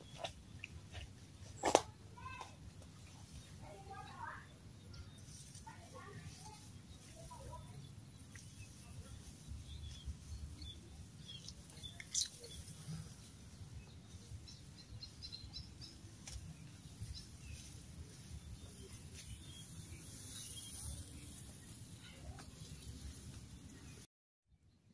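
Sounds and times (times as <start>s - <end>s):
small bird chirps: 6.3s - 13.2s, 13.8s - 24.0s.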